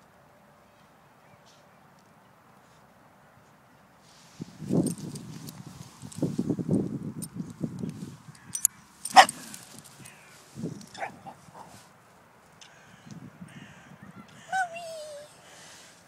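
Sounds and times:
rustling handling noise: 0:04.0 - 0:12.5
small dog barking: 0:09.1 - 0:09.6, 0:10.9 - 0:11.8.

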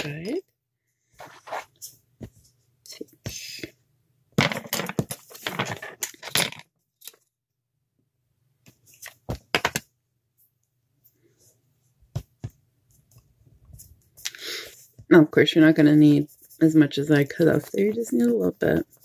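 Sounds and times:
clay scraping and rustling: 0:01.0 - 0:03.3, 0:04.4 - 0:07.3.

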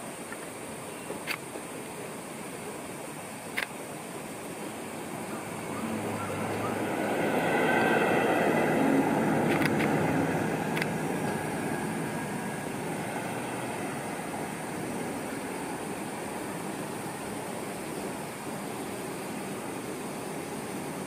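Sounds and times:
high whining tones: 0:04.6 - 0:17.4
train wheels rolling on rails: 0:06.9 - 0:14.5
sharp clicks: 0:09.5 - 0:10.0, 0:10.7 - 0:11.0.

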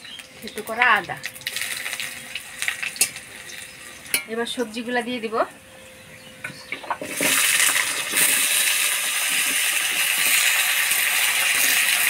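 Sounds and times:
vegetables sizzling in hot oil: 0:00.0 - 0:04.8, 0:07.0 - 0:12.0.

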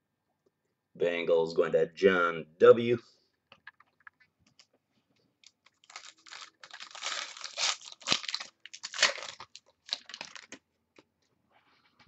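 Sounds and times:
wrapper tearing and crinkling: 0:05.4 - 0:10.6.

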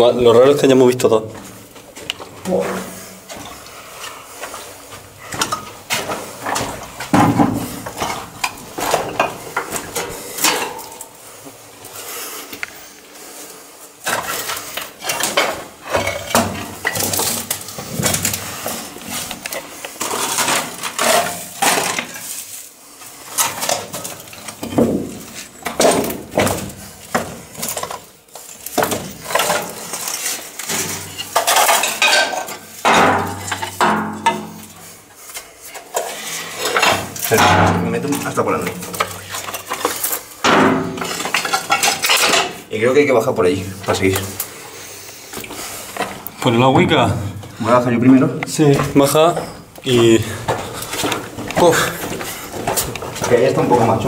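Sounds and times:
loose rock clinking and scraping: 0:14.1 - 0:54.0.

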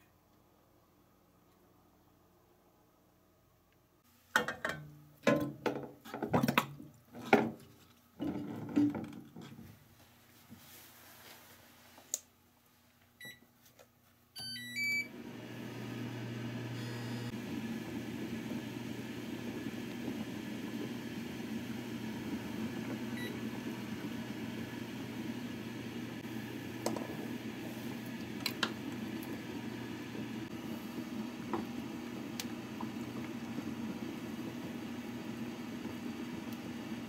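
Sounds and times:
cooktop button beeps: 0:14.4 - 0:15.1, 0:16.8 - 0:17.3
cooktop coil humming: 0:14.4 - 0:37.0
water boiling in a pot: 0:15.1 - 0:37.0.

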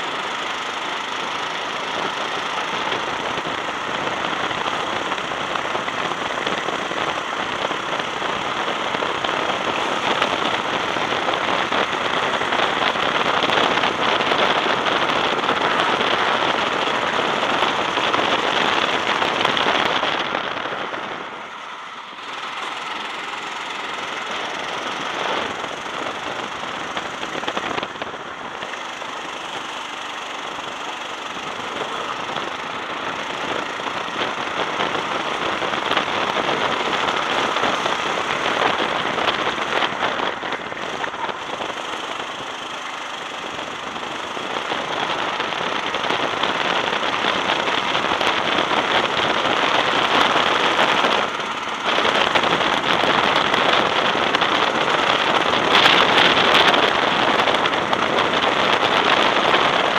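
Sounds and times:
go-kart engine running hard: 0:00.0 - 0:59.9
wind rushing over microphone: 0:00.0 - 0:59.9.

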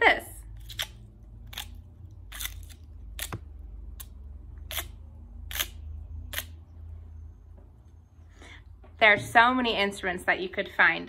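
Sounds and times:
stick scraping pinecone scales: 0:00.6 - 0:03.4, 0:04.0 - 0:06.6.

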